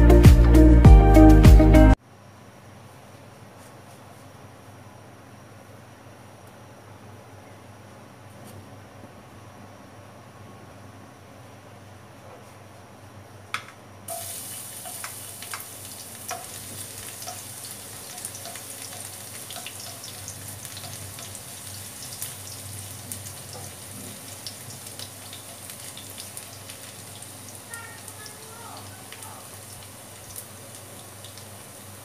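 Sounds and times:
garlic sizzling in hot oil: 14.1s - 32.0s.

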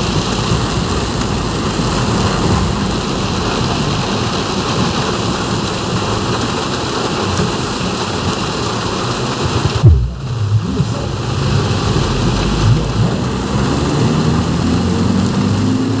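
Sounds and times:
heavy rain on a car: 0.0s - 16.0s
car engine running: 9.3s - 16.0s
loud low thump: 9.6s - 13.2s.

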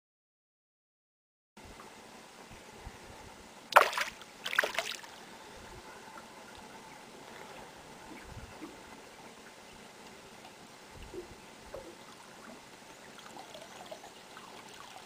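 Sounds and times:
faint wash of water: 3.6s - 15.0s
fish splashing in water: 3.7s - 5.2s.

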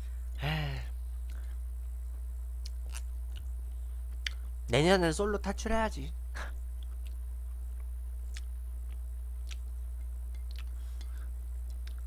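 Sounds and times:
low electrical hum: 0.0s - 12.0s
mouth clicks: 2.6s - 4.5s
person chewing noodles: 2.6s - 4.5s, 6.8s - 12.0s.

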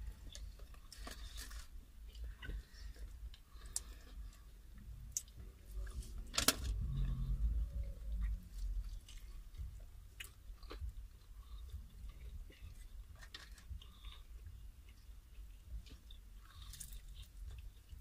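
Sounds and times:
crunching fried chicken: 5.1s - 18.0s.

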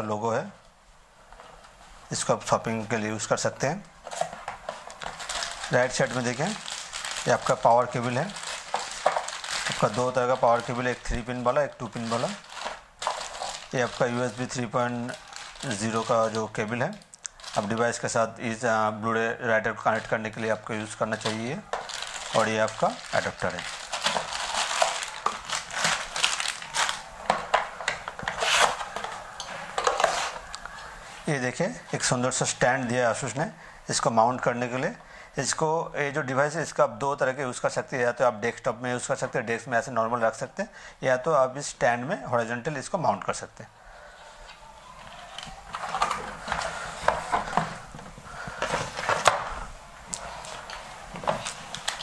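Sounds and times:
plastic bags rustling: 4.0s - 31.4s, 44.4s - 52.0s
cardboard scraping: 28.2s - 30.4s.

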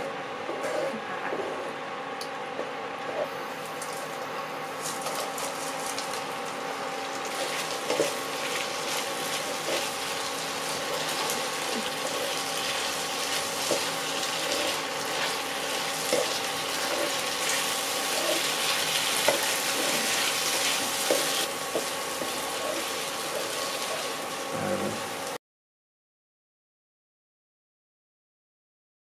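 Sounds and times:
vegetables sizzling in frying pan: 4.8s - 25.4s.

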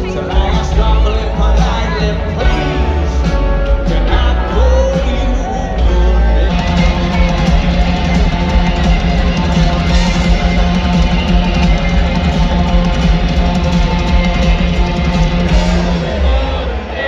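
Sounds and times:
lead singer's vocal: 0.0s - 7.3s, 15.4s - 17.0s
live rock band playing: 0.0s - 17.0s.

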